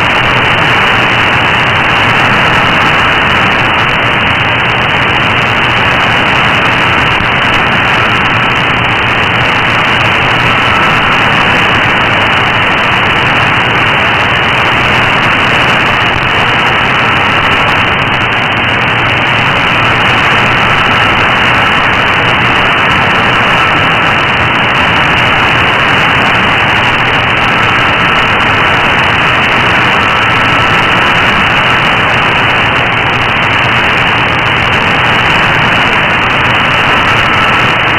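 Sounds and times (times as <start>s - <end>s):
radio static hiss: 0.0s - 37.9s.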